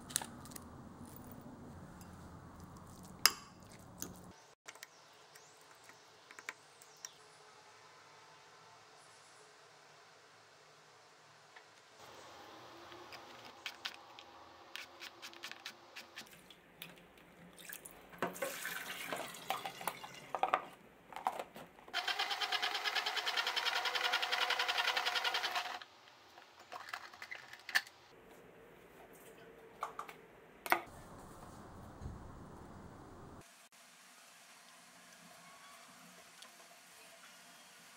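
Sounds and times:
tap water running: 17.6s - 20.5s
salad spinner whirring rattle: 22.0s - 25.8s.

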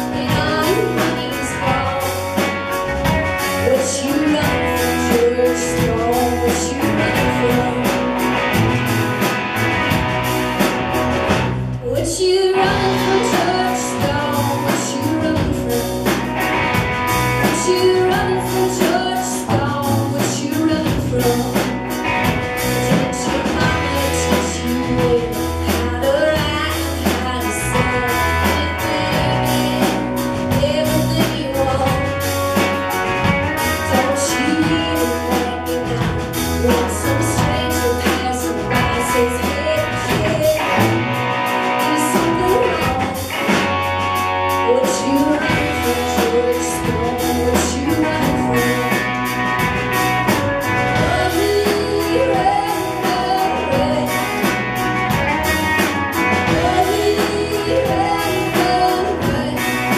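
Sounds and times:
woman singing: 0.0s - 9.7s, 11.2s - 59.9s
rock band playing: 0.0s - 59.9s.

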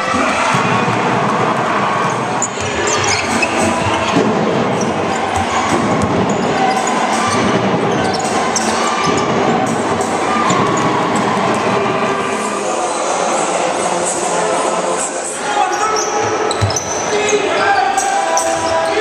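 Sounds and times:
crowd noise: 0.0s - 19.0s
basketball bouncing on wooden court: 0.5s - 8.4s, 16.2s - 17.0s
shoes squeaking: 2.4s - 4.2s, 15.7s - 19.0s.

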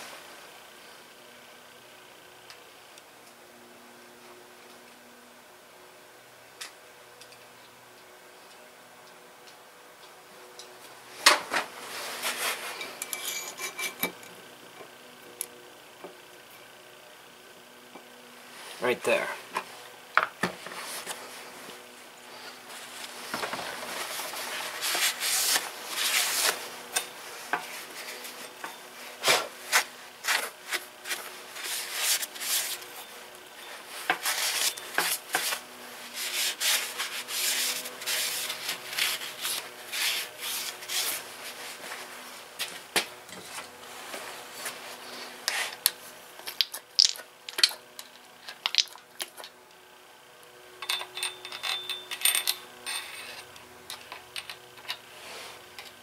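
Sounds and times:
metal scraping and rubbing: 11.8s - 14.1s.

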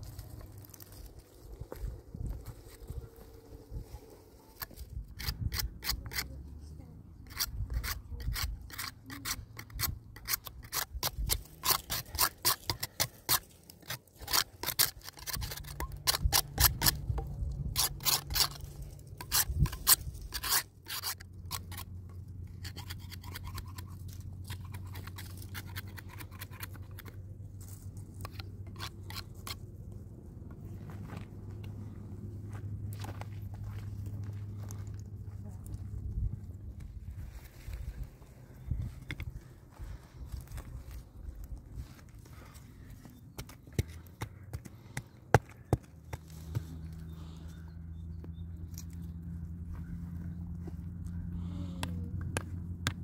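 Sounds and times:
low steady hum: 0.0s - 53.0s
knife scraping wooden stick: 4.5s - 6.4s, 7.2s - 27.2s, 28.2s - 29.6s.

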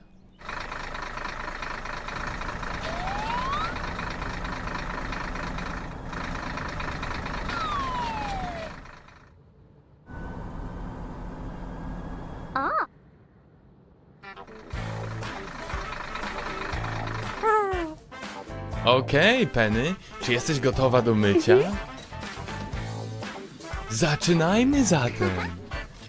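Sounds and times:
engine whine: 0.0s - 17.7s
cartoon engine drone: 2.0s - 9.2s, 12.5s - 12.9s, 14.2s - 18.0s.

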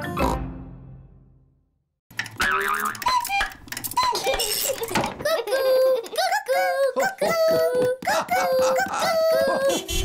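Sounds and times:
cartoon cuckoo clock calling: 2.2s - 5.0s.

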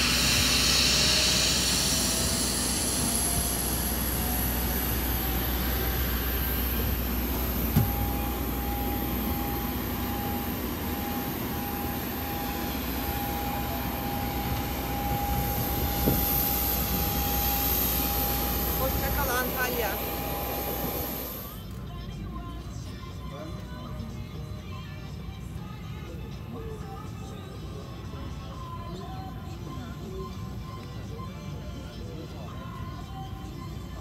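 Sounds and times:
jet engine whine: 0.0s - 21.8s.

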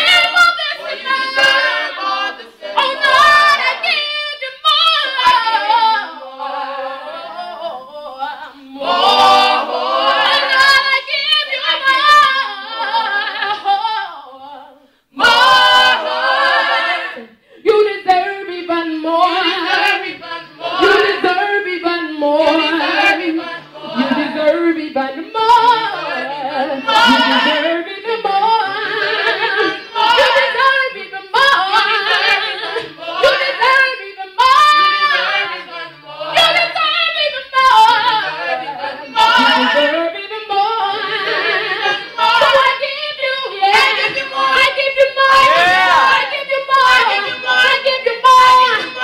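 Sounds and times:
gospel group singing a cappella: 0.0s - 49.0s.

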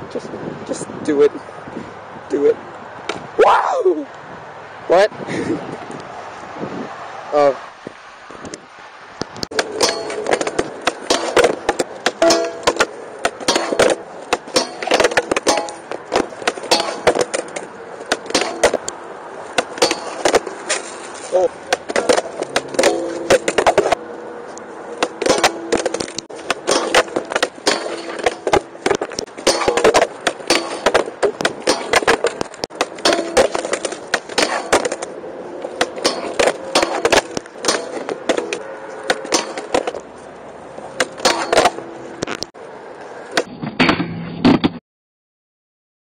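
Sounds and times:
skateboard wheels rolling on concrete: 4.9s - 44.8s
skateboard clacking on ground and metal: 9.4s - 24.1s, 24.9s - 44.8s.

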